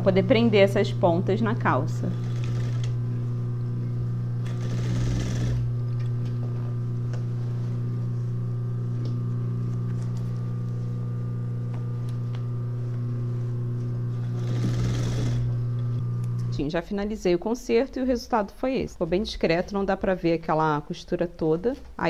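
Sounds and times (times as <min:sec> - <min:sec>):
sewing machine humming: 0:00.0 - 0:06.1, 0:13.8 - 0:15.7.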